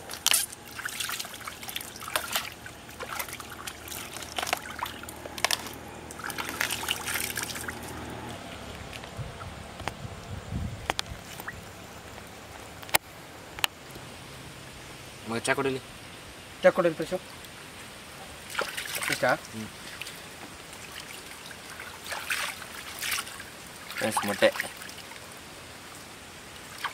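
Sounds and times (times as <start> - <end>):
wet crackling and squelching: 0.0 - 10.0, 10.8 - 14.0, 18.4 - 25.2.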